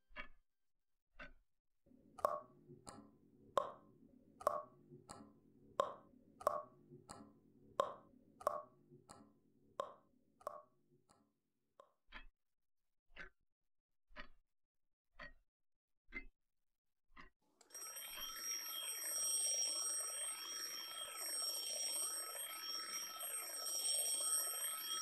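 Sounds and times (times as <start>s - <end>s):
alarm clock ticking: 3.6s - 3.8s, 17.2s - 25.0s.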